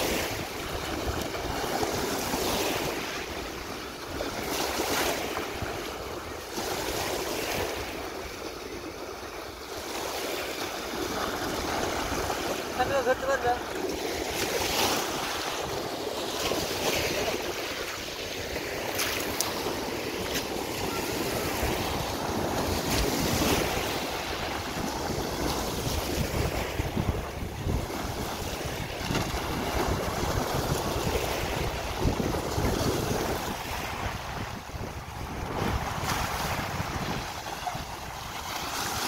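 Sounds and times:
small waves breaking: 0.0 - 39.0
wind buffeting microphone: 0.0 - 39.0.

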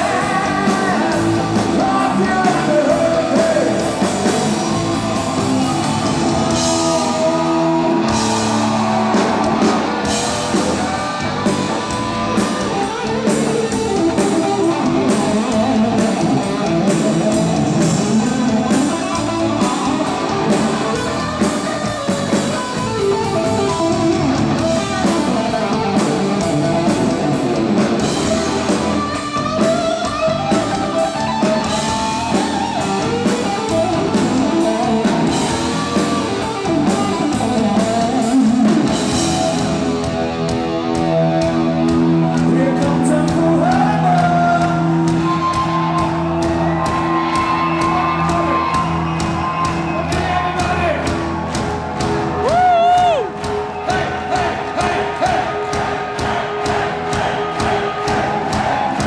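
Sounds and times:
live rock band: 0.0 - 59.0
electric guitar solo: 4.1 - 42.3.

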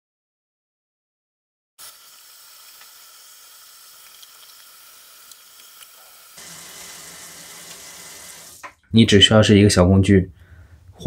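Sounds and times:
tap water running into sink: 1.8 - 8.8.

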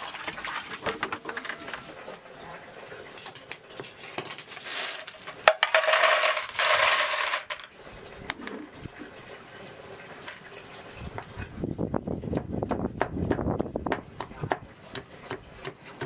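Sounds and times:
snails clattering into metal pot: 4.0 - 7.8.

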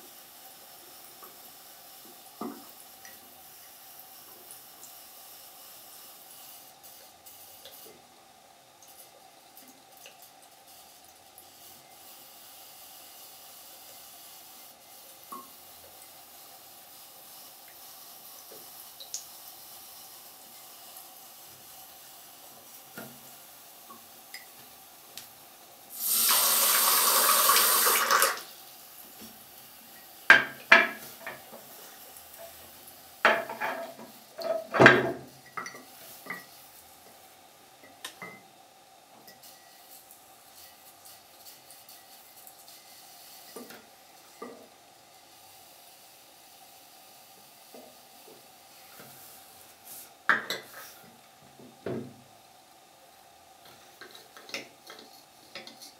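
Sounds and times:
water running into a glass: 26.0 - 28.5.

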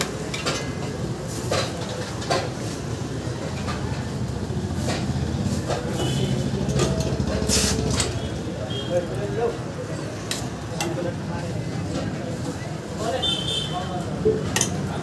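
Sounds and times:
utensils knocking and clinking: 0.3 - 2.6.

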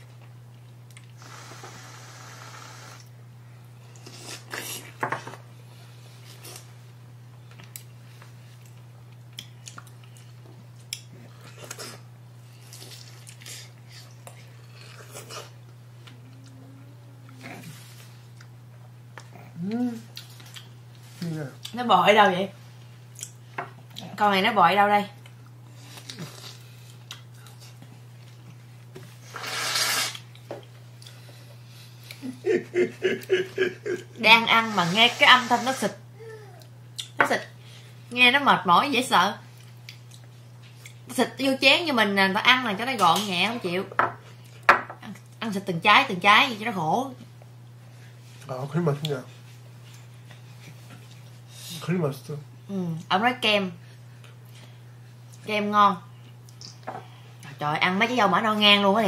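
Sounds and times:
people biting juicy strawberries: 25.7 - 27.8.

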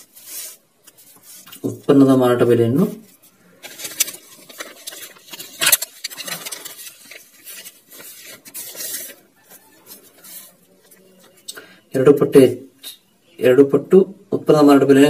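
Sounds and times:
notebook pages rustling: 0.0 - 2.0, 3.1 - 11.5
paper crackle: 3.2 - 11.5.

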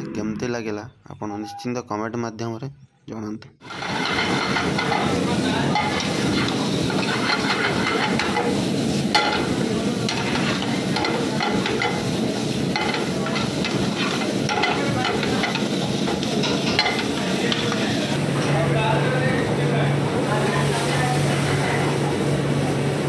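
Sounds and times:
metal ladle scraping a pan: 3.6 - 18.0
vegetables sizzling in a wok: 3.6 - 18.4.

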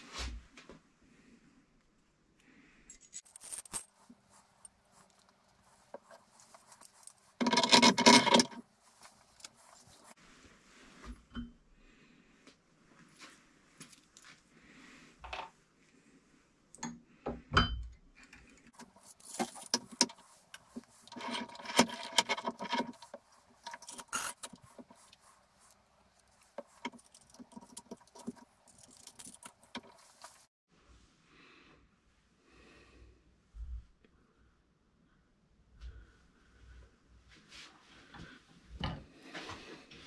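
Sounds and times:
metal parts clinking and jingling: 2.9 - 9.8, 18.5 - 30.5.

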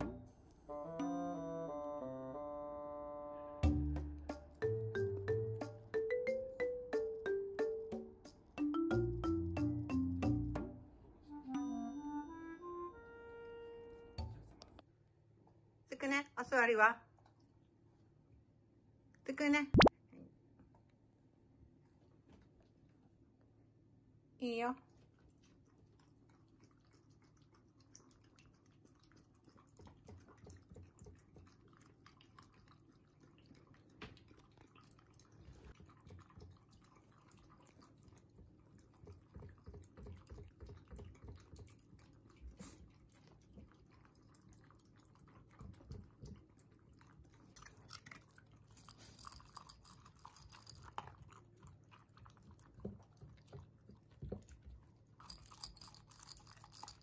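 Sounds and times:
dogs chewing food: 25.0 - 57.0.

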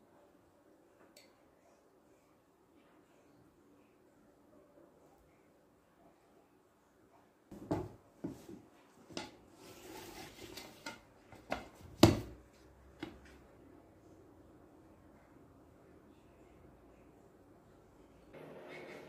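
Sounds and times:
soft rubbing scrape: 8.3 - 11.0.

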